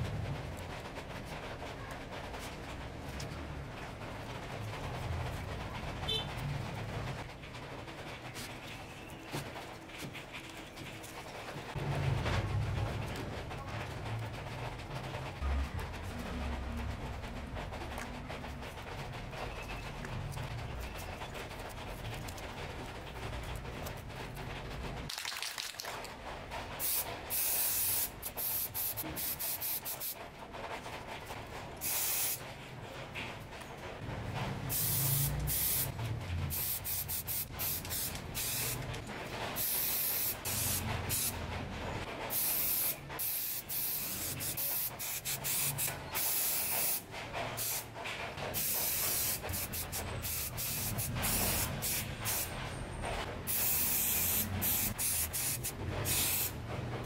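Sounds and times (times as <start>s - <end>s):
spray-paint can hissing: 26.8s - 30.2s, 31.8s - 32.4s, 34.7s - 35.9s, 36.5s - 38.9s, 39.6s - 41.4s, 42.3s - 47.0s, 47.6s - 47.9s, 48.5s - 52.5s, 53.5s - 56.6s.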